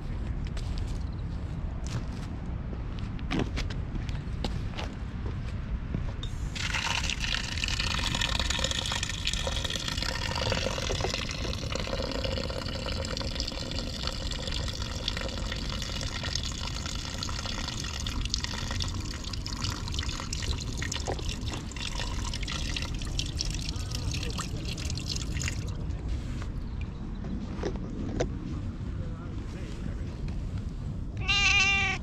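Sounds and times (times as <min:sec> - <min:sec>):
tap water splashing into basin: 0:06.6 - 0:25.8.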